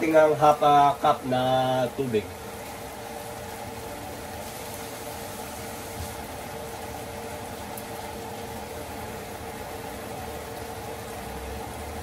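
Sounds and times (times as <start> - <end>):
fan motor hum: 0.0 - 12.0
hiss: 4.4 - 7.0.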